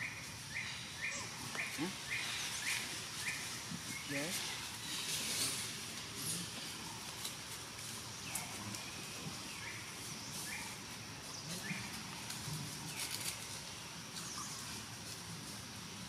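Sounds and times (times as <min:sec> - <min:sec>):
steady forest hiss: 0:00.0 - 0:16.0.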